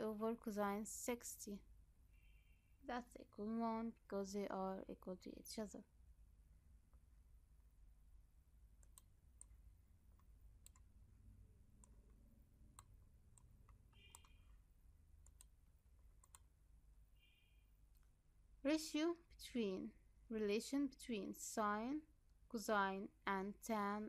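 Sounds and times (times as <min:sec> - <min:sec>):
faint high-pitched chirps: 0:02.1 - 0:02.9, 0:13.9 - 0:14.7, 0:17.1 - 0:17.8
computer mouse clicks: 0:08.8 - 0:10.9, 0:11.8 - 0:14.6, 0:15.2 - 0:16.5.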